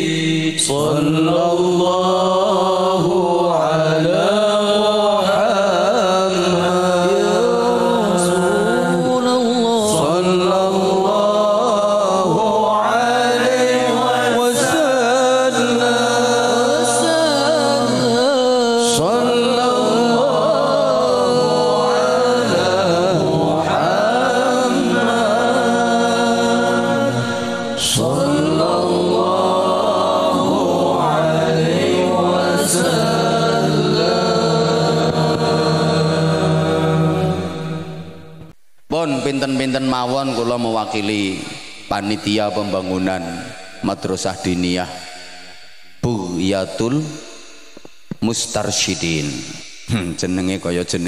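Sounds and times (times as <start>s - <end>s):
men chanting devotional song: 0.0s - 51.0s
sustained low notes: 17.5s - 51.0s.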